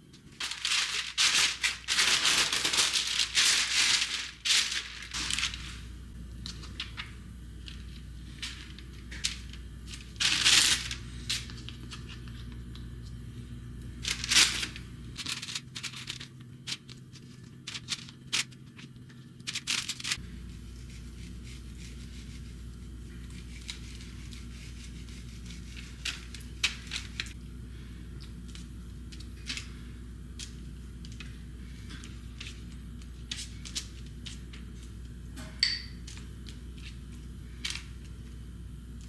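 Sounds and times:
low room hum: 0.0 - 39.0
sharp ringing click on glass: 35.6 - 36.0.

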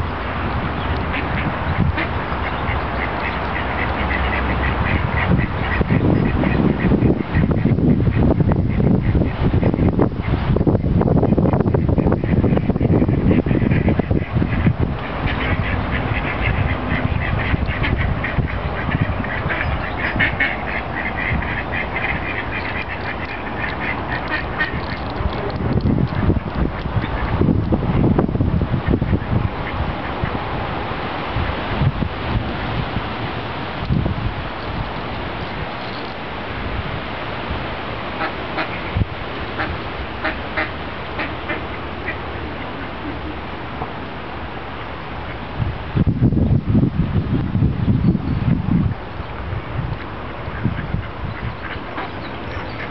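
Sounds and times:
wind rumble on microphone: 0.0 - 52.9
ducks quacking: 0.8 - 10.4, 11.2 - 27.5, 38.1 - 43.5, 49.8 - 52.9.

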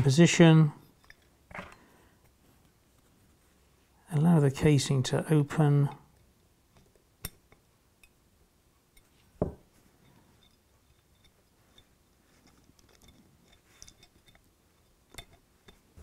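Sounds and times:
soft knock: 9.4 - 9.6.

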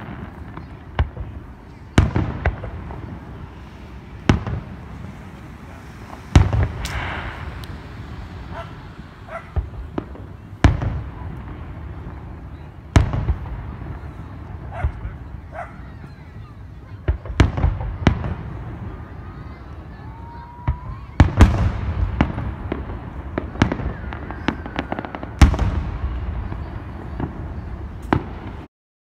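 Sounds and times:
fireworks shells booming: 0.0 - 28.7
low rumble: 2.6 - 12.4
firework pops: 4.2 - 12.2, 20.6 - 28.7.

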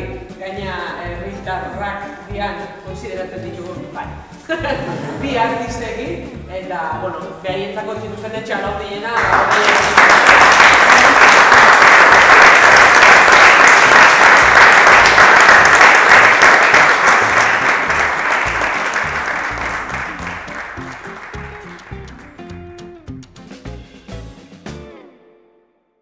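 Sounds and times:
music playing: 0.0 - 25.4
audience applauding: 9.2 - 22.4.

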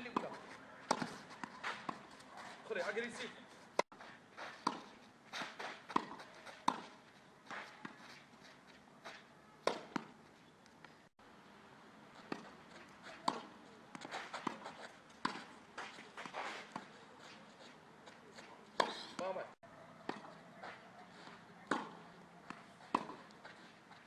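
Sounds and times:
tennis balls struck by rackets: 0.0 - 8.0, 9.1 - 10.2, 12.2 - 17.0, 18.2 - 24.0
balls bouncing on court: 20.0 - 20.4.

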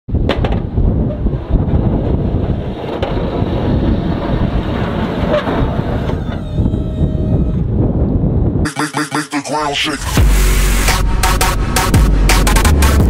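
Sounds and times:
wind on microphone: 0.1 - 8.7
truck plowing snow: 0.8 - 6.4.

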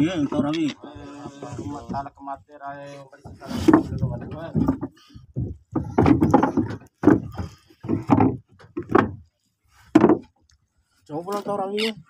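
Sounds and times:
heavy knocks on wooden planking: 3.2 - 10.3.

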